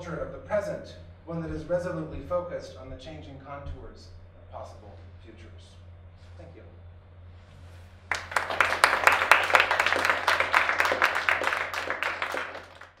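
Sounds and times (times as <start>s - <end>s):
low steady hum: 0.0s - 13.0s
audience applauding: 8.1s - 13.0s.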